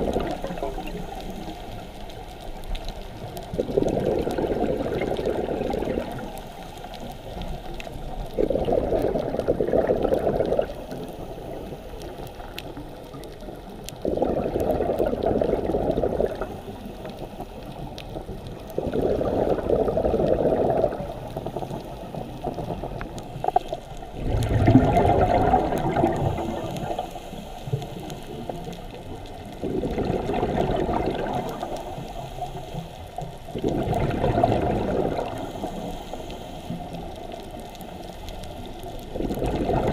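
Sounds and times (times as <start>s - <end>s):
bubbling exhaled air underwater: 0.0s - 39.9s
quiet regulator breaths: 35.2s - 39.1s.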